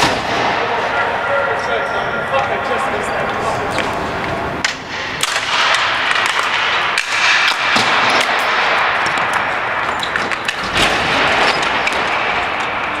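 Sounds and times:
sticks and ball clacking: 3.2 - 10.8.

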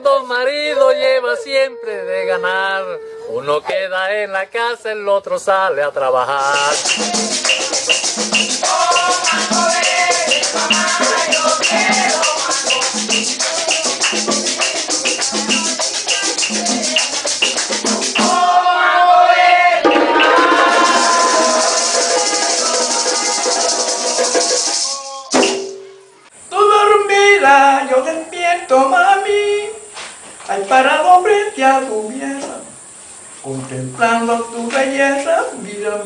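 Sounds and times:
voices singing: 0.0 - 25.5, 26.4 - 32.8, 33.4 - 36.0
maraca shaking: 6.4 - 27.6
wooden hand drums: 6.6 - 18.5, 19.8 - 25.9.

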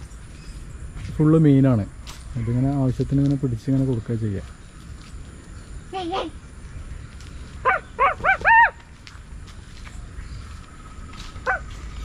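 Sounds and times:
animal calling: 7.6 - 8.8, 11.4 - 12.0.

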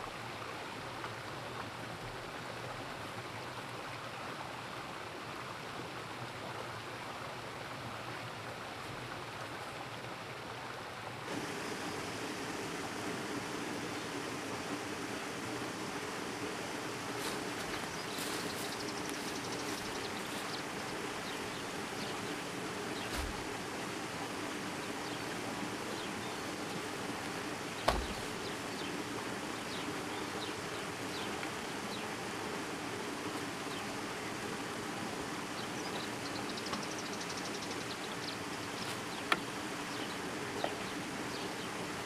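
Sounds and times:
steady rushing hiss: 11.2 - 42.0
insects chirping: 11.3 - 34.3
sharp knock: 27.8 - 28.2
soft low thump: 27.8 - 28.3.

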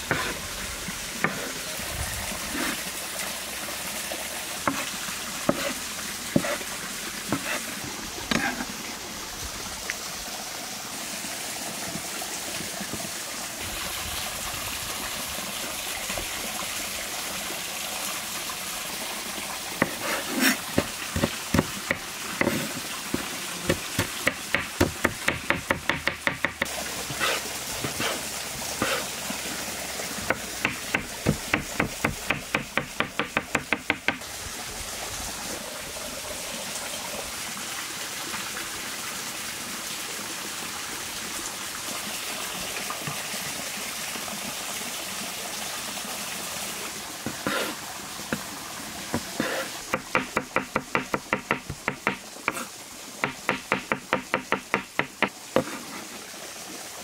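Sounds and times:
stream rushing: 0.0 - 57.0
knife chopping on wooden board: 0.1 - 0.4, 4.7 - 4.9, 5.5 - 5.8, 6.4 - 6.6, 19.8 - 28.2, 28.8 - 29.0, 30.3 - 34.2, 49.2 - 55.8.

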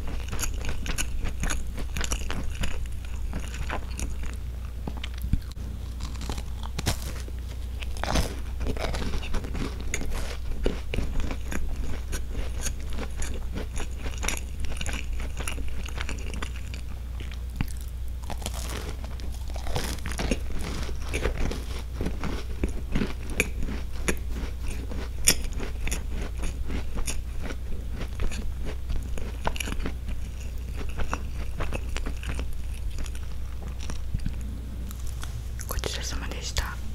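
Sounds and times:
biscuit crunching: 0.0 - 35.7.

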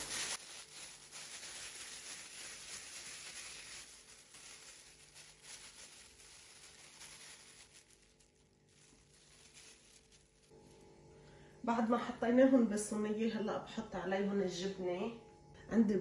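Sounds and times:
plastic gloves rustling: 0.0 - 10.9.

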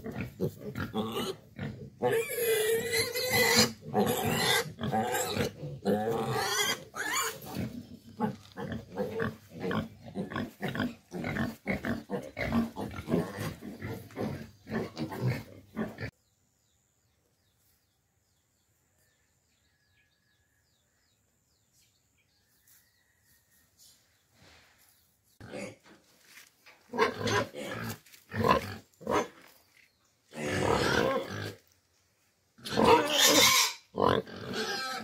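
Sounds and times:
pigs grunting and squealing: 0.0 - 16.2, 25.4 - 25.9, 26.9 - 29.5, 30.3 - 31.7, 32.6 - 35.0.

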